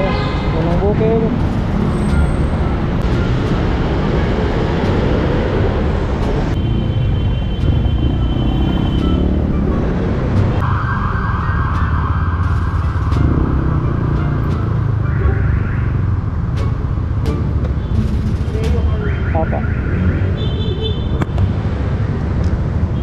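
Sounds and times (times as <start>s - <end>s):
motorcycle engine and road rumble: 0.6s - 11.0s, 11.8s - 19.2s.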